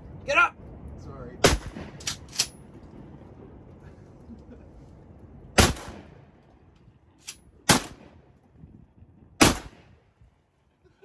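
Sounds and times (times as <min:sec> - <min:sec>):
shotgun shots: 0:01.4 - 0:02.4, 0:05.6 - 0:06.2, 0:07.7 - 0:08.2, 0:09.4 - 0:09.9.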